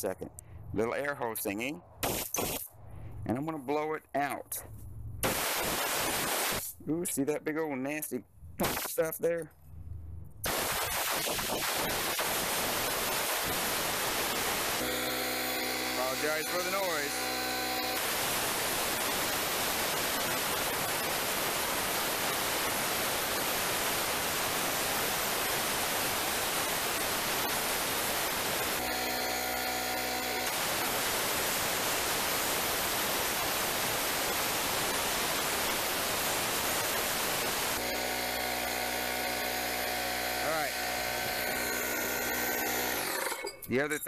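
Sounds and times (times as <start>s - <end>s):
air blow gun hissing: 5.2s - 6.7s, 10.5s - 28.9s, 30.4s - 37.8s
compressor motor hum: 11.7s - 22.0s, 26.0s - 43.5s.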